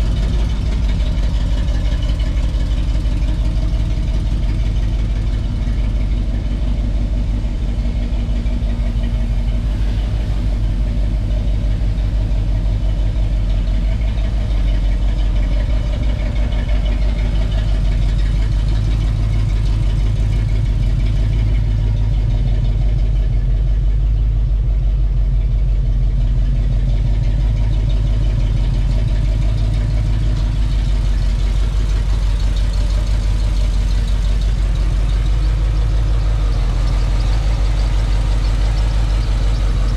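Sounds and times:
engine idling: 0.0 - 39.9.

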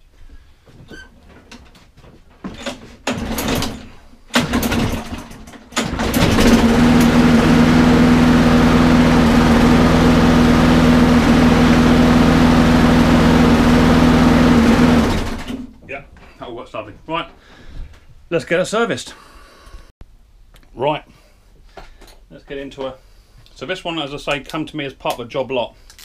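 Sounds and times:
lawnmower engine pull-started: 2.6 - 15.7.

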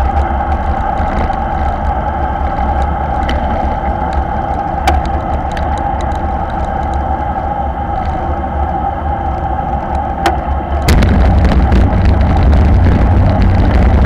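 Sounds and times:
bicycle clicks: 0.0 - 10.9
bicycle tyre noise on tarmac: 0.0 - 14.0
wind rushing over microphone: 0.0 - 14.0.

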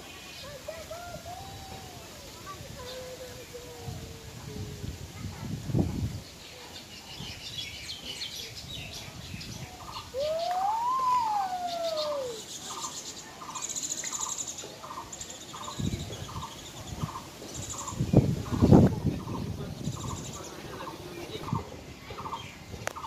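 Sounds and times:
birds chirping rapidly: 6.2 - 23.0.

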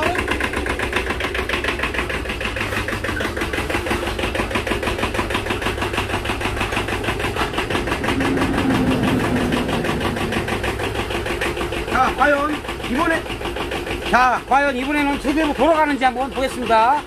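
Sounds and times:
tractor diesel engine running: 0.0 - 17.0
steady hum: 6.6 - 12.2.

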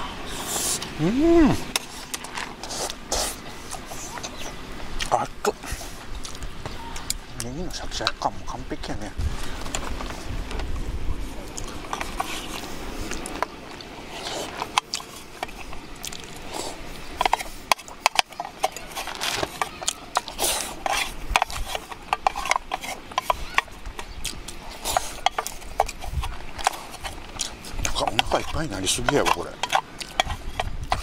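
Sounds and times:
spoon scraping metal tin: 17.2 - 24.1, 24.7 - 31.0.

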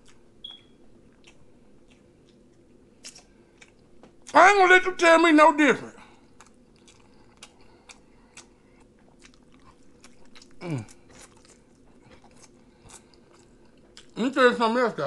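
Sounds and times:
chewing and crunching: 0.0 - 0.3, 1.0 - 4.4, 6.0 - 14.4.

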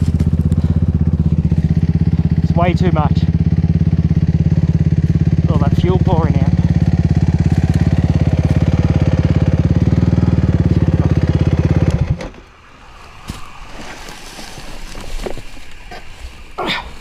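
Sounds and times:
motorcycle engine idling: 0.0 - 12.3
faint rustling: 12.9 - 17.0.

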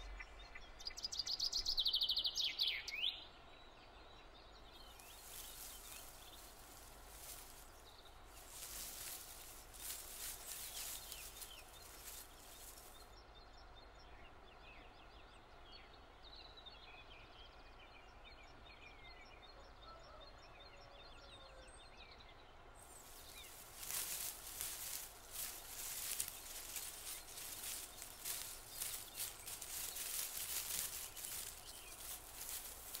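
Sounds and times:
small birds chirping: 4.7 - 13.6, 22.9 - 33.0
crackly rustling: 4.8 - 13.0, 22.9 - 33.0.

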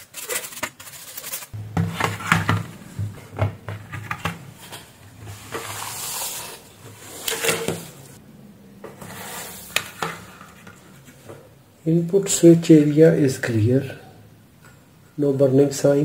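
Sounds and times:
rubbing scrape on work surface: 5.2 - 7.9.

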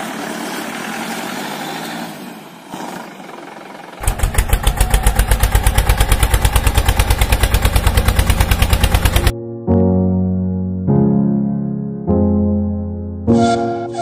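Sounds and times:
engine-like hum: 0.0 - 9.3
rapid loud bangs: 4.0 - 9.3.

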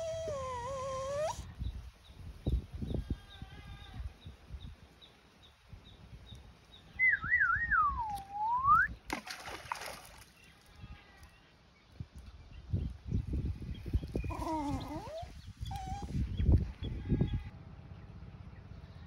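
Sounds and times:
splash in river: 9.1 - 10.4.

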